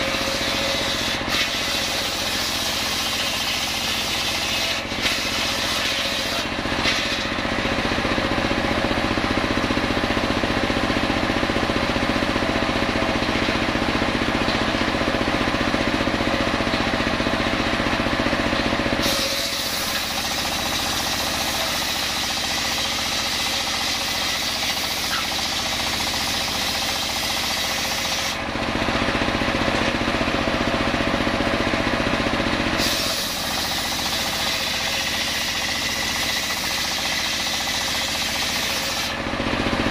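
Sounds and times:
saw blade spinning free: 0.0 - 7.9, 19.0 - 28.5, 32.8 - 39.3
circular saw cutting log: 0.0 - 11.2, 11.9 - 31.2, 31.8 - 39.9.

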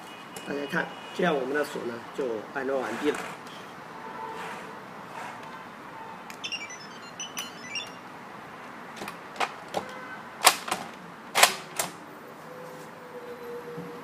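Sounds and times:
door lock electronic beeps: 6.4 - 8.0.

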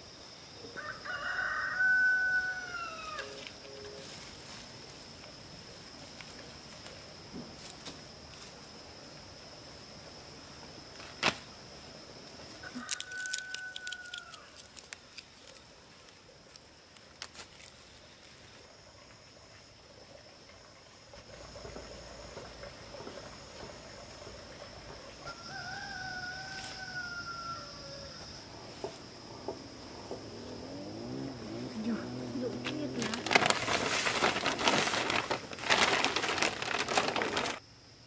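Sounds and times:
high insect drone: 0.0 - 38.0
distant rooster crowing: 0.7 - 3.4, 12.6 - 14.5, 25.2 - 28.4
vegetable stems rustling: 12.7 - 18.6, 31.8 - 37.6.

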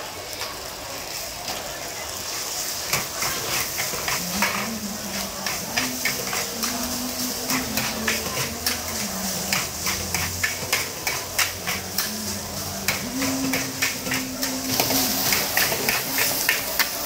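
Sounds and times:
steady sizzle: 0.0 - 17.0
ladle scraping wok: 2.7 - 17.0.

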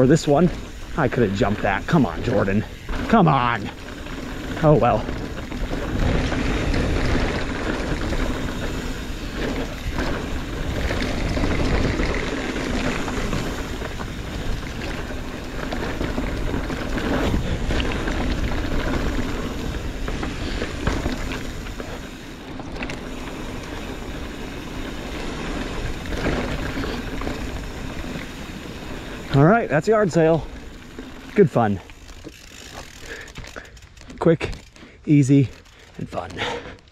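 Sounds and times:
bike knocks and rattles: 0.0 - 28.5
bike tyre noise on dirt: 0.0 - 36.9.

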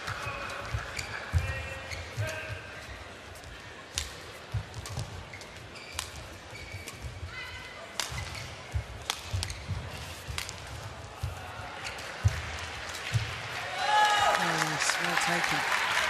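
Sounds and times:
shoes squeaking on court: 0.1 - 12.4
racket striking shuttlecock: 7.9 - 13.3.

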